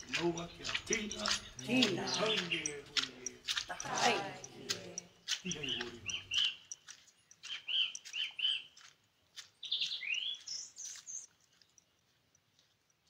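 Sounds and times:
bird chirping and whistling: 5.6s - 6.8s, 7.5s - 8.7s, 9.6s - 11.2s.

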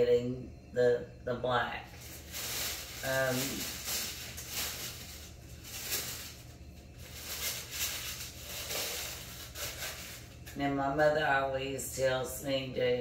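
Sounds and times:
tissue paper rustling: 1.9s - 10.6s.

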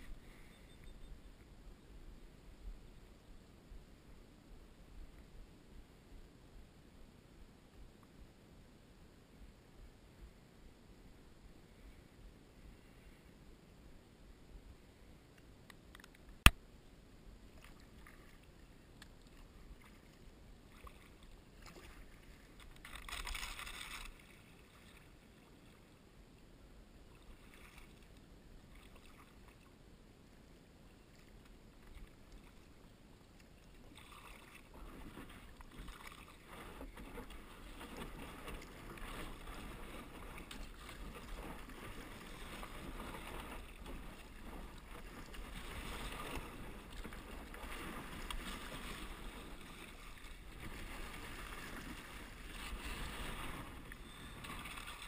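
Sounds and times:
paddle strokes splashing: 19.2s - 25.5s, 33.4s - 55.0s.

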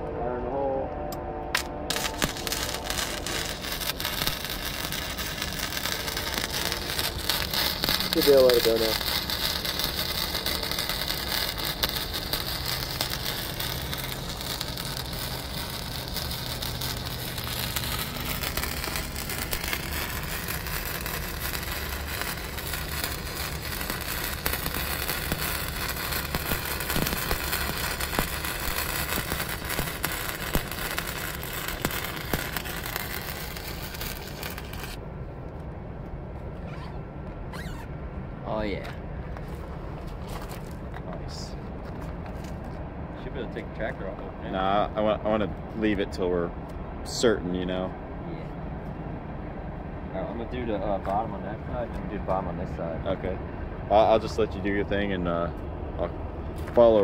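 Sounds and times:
welder arc crackling: 1.6s - 35.0s.

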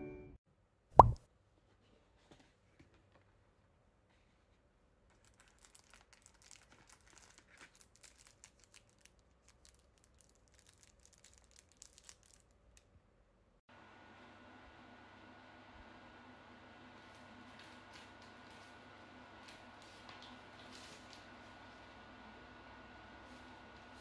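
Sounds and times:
plastic wrapping crinkling: 5.1s - 12.9s.

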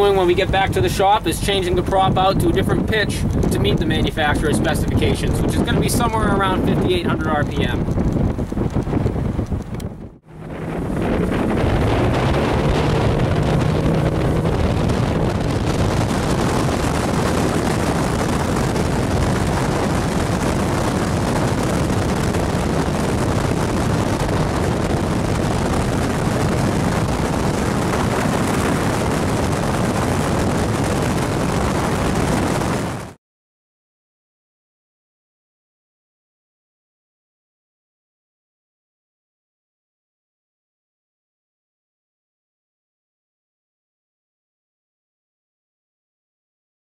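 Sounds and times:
wind noise on microphone: 0.0s - 33.2s
boat engine at full throttle: 9.6s - 33.2s.

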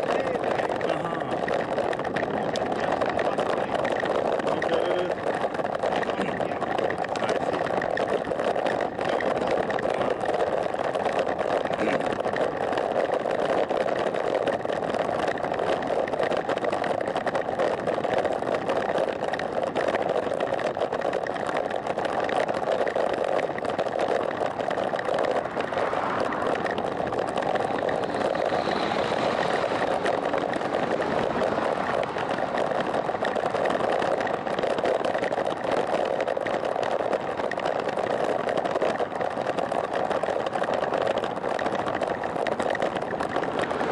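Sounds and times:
wind on microphone: 0.0s - 20.8s, 23.4s - 43.9s
bike tyres rolling on asphalt: 0.0s - 43.9s.

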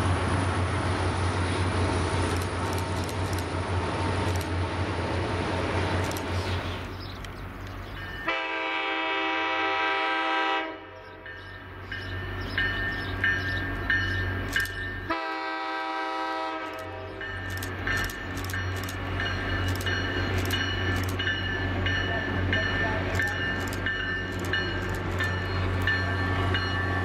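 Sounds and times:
diesel locomotive rumble: 0.0s - 27.0s
locomotive air horn blasts: 8.3s - 11.0s, 15.1s - 17.2s
bell ringing: 17.2s - 27.0s.

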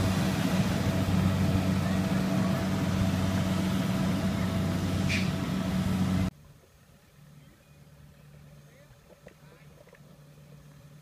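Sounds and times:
combine harvester engine hum: 0.0s - 6.3s.

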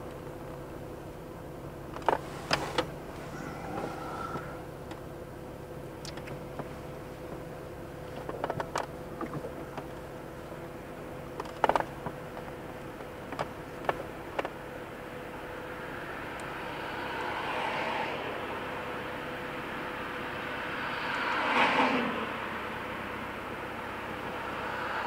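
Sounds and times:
car road and engine hum: 0.0s - 25.0s
sharp clicks and rattles: 8.2s - 10.0s, 11.3s - 12.6s.

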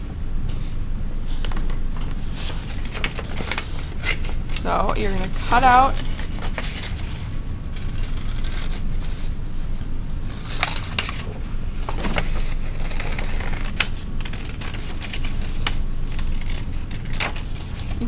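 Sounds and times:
steady low hum: 0.0s - 18.0s
paper rustling: 0.5s - 18.0s
scissors snipping paper: 2.5s - 9.2s, 10.3s - 18.0s.

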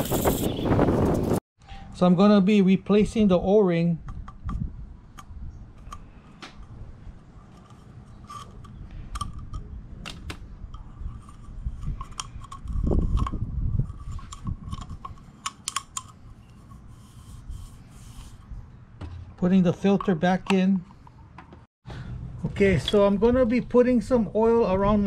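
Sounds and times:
clicks and scrapes of plastic cap: 10.7s - 18.4s.

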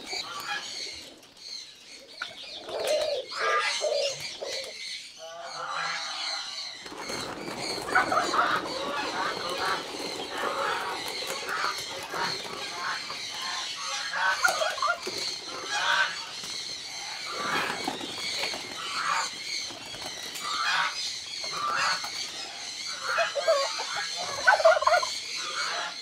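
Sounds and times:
geese honking: 7.8s - 16.3s, 22.9s - 26.0s.

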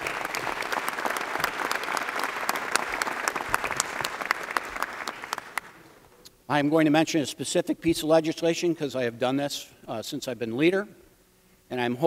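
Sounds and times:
crowd applauding: 0.0s - 5.8s.

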